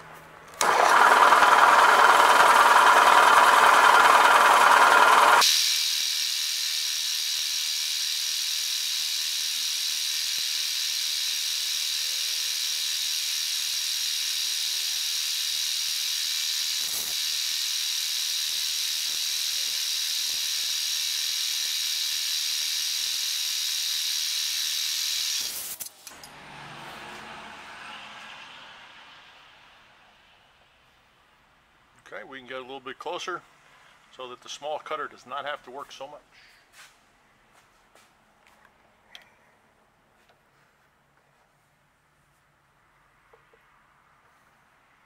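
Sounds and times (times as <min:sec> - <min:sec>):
milling machine cutting steel: 0:00.6 - 0:26.4.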